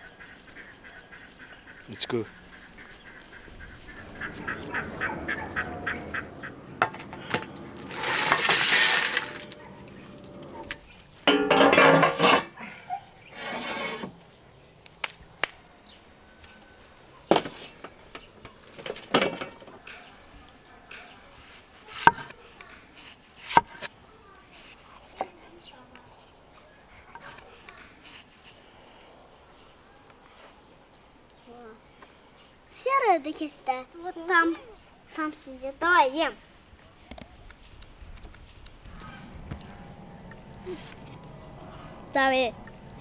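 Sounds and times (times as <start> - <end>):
loud rushing noise: 3.8 - 9.5.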